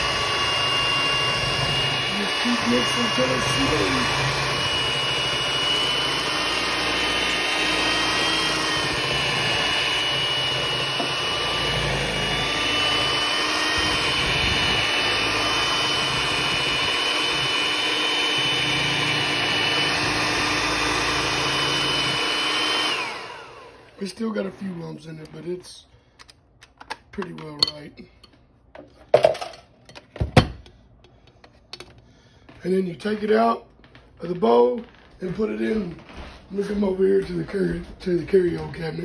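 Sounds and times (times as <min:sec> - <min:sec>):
electric hand mixer churning batter: 0:00.0 - 0:25.8, 0:35.0 - 0:39.0.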